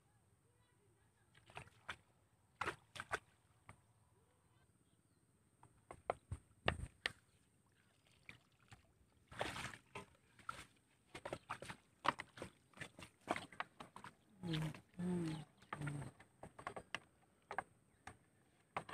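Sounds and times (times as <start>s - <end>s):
water splashing and sloshing: 1.3s - 3.6s, 6.9s - 18.9s.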